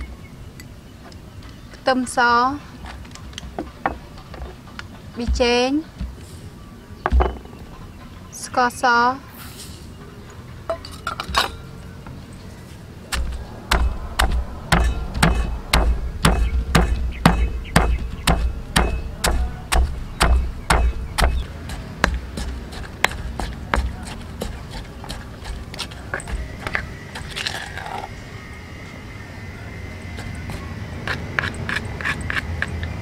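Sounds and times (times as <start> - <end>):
stone pestle pounding in mortar: 13.1 - 27.3.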